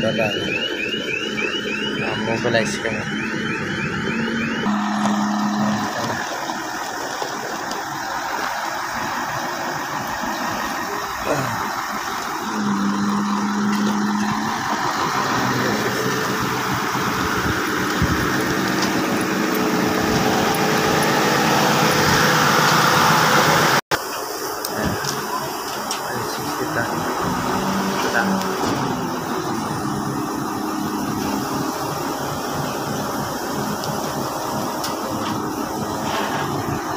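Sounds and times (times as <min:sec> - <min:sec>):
steady tone: 0:00.0 - 0:07.0
diesel engine running: 0:00.0 - 0:36.9.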